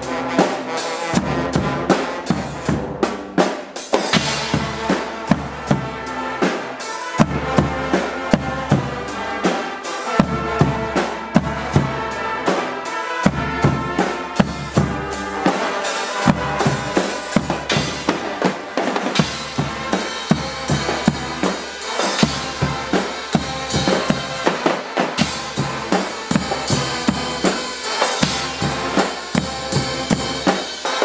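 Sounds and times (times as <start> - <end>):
brass chords: 0.0 - 31.0
drum kit and cymbals: 0.0 - 31.0
pounding bass drums: 4.1 - 6.0, 7.2 - 9.2, 13.3 - 15.6, 16.2 - 24.5, 25.2 - 30.8.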